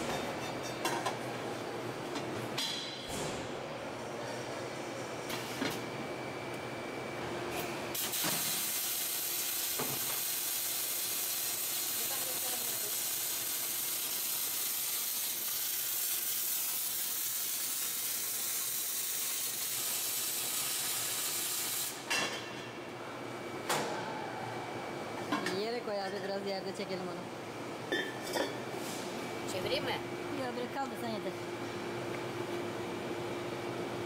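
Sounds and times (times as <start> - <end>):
welding arc hissing and sizzling: 7.9 - 22.0.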